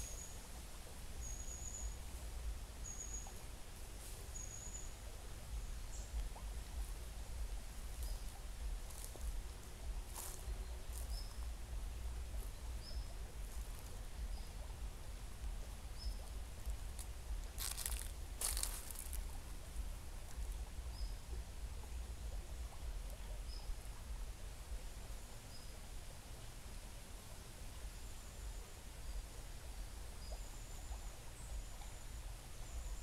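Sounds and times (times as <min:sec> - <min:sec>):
forest stream flowing: 0:00.0 - 0:33.0
steady low rumble: 0:03.5 - 0:25.4
rustling: 0:16.2 - 0:20.6.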